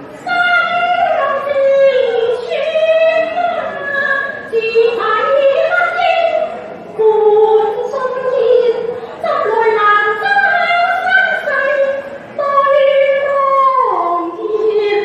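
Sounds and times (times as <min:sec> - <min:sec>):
woman singing opera: 0:00.2 - 0:15.0.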